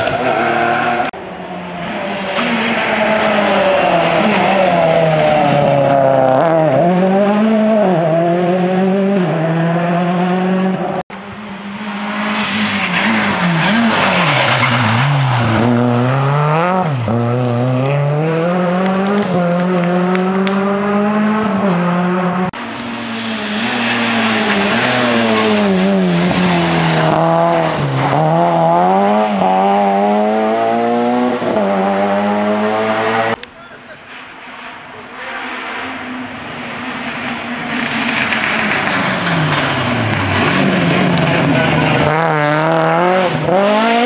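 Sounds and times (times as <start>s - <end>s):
rally car engines revving: 0.0s - 44.0s
gravel spraying: 22.8s - 27.8s.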